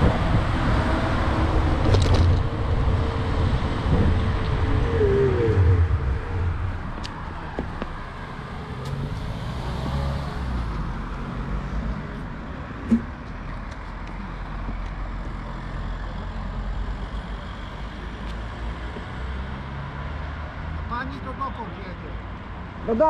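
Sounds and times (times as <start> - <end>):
traffic road rumble: 0.0 - 23.0.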